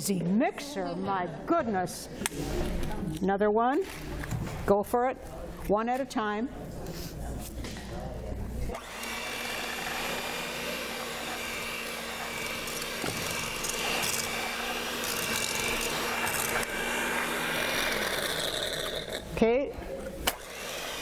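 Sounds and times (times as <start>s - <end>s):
electric hand mixer running: 8.8s - 19.2s, 20.3s - 21.0s.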